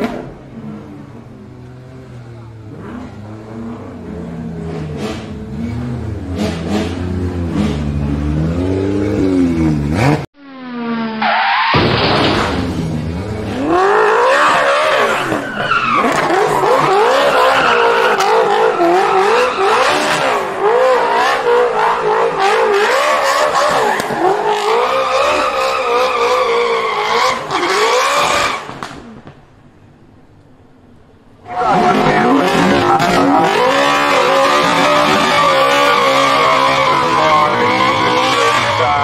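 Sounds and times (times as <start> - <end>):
car engine revving hard: 2.7 - 10.3, 31.7 - 39.0
tyres squealing and skidding: 2.7 - 29.2, 31.4 - 39.0.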